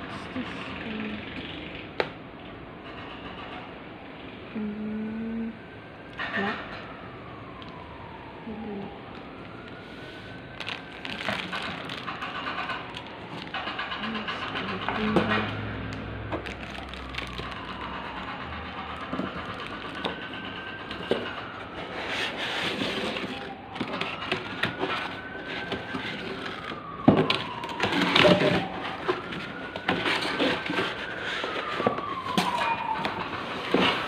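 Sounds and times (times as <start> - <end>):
siren wailing: 3.3 - 34.0
plastic crinkling: 9.1 - 15.2, 16.3 - 32.6.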